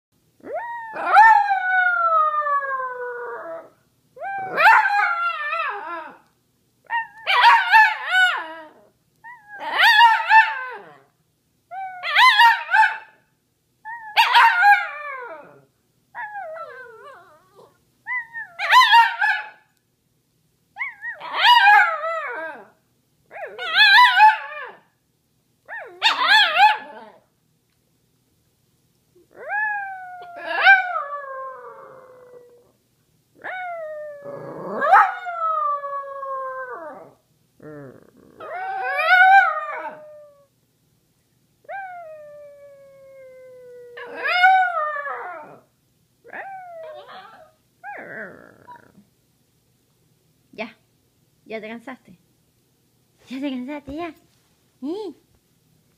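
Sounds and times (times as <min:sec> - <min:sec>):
small dog howling: 0:00.4 - 0:06.3, 0:06.9 - 0:11.1, 0:11.7 - 0:13.0, 0:13.9 - 0:19.6, 0:20.8 - 0:24.9, 0:25.7 - 0:27.2, 0:29.3 - 0:32.8, 0:33.4 - 0:40.5, 0:41.7 - 0:45.7, 0:46.3 - 0:49.0.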